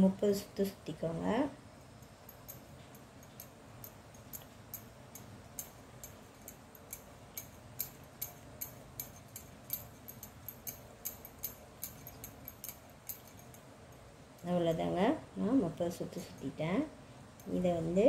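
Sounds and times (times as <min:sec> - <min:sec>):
yarn winding ticks: 0:02.0 - 0:14.9.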